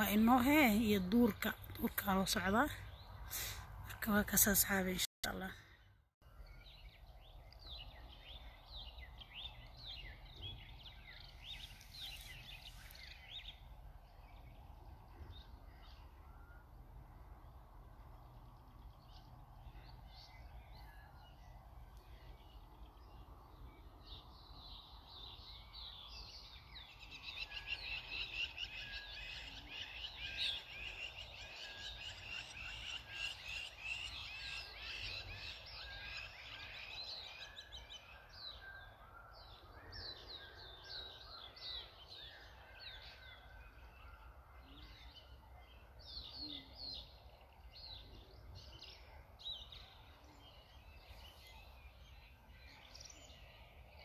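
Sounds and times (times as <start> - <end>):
birds chirping and trilling: 0.0 - 54.0.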